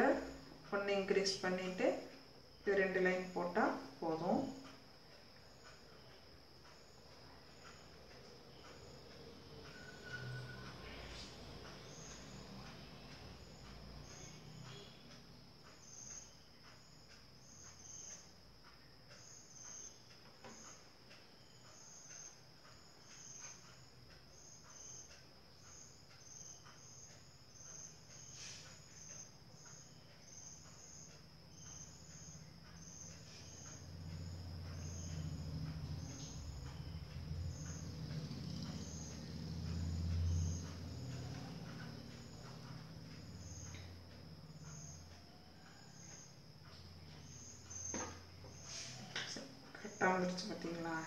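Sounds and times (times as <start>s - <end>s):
crickets chirping: 0.0s - 51.0s
low hum: 31.6s - 48.7s.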